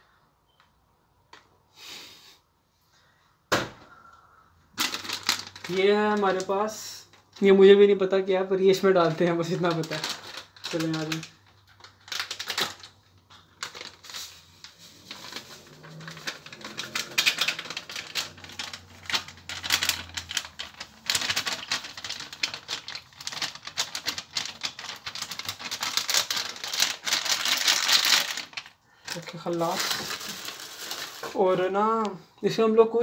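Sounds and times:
paper packet clicking and rustling: 4.8s - 7.7s, 8.7s - 31.7s
powder pouring into glass jug: 14.2s - 23.2s.

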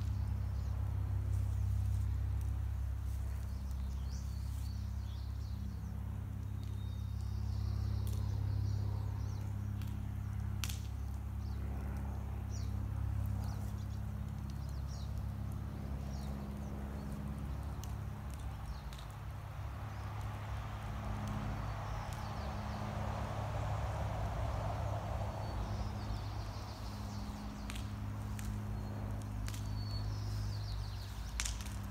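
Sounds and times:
birds chirping: 0.0s - 31.9s
steady low hum: 0.0s - 31.9s.

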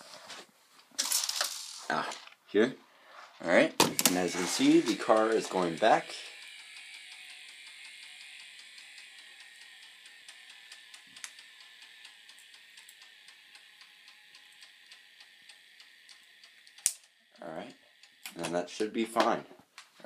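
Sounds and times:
gear clicking: 3.8s - 19.0s
toy electric motor whine: 3.8s - 19.0s.

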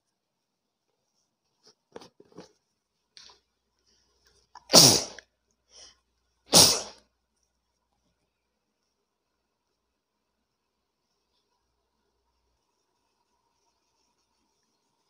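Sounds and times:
person sneezing: 4.6s - 5.2s, 6.5s - 7.0s.

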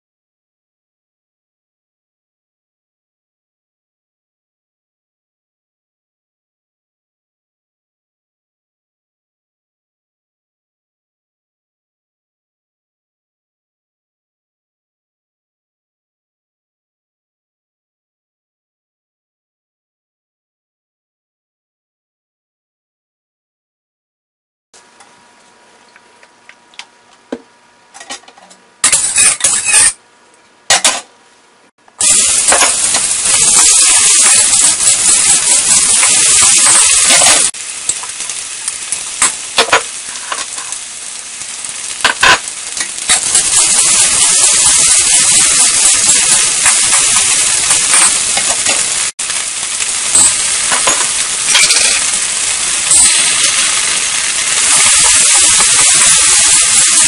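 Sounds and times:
aromatics sizzling in hot oil: 28.8s - 30.0s, 32.0s - 57.0s
metal spatula scraping a wok: 28.8s - 30.0s, 50.1s - 52.2s.

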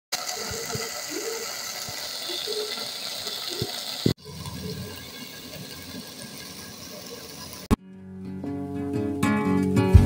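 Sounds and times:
stew hissing in a pot: 0.2s - 7.7s.

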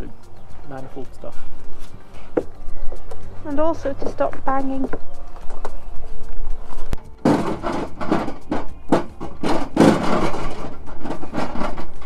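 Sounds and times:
knocks and scrapes: 6.5s - 12.0s.

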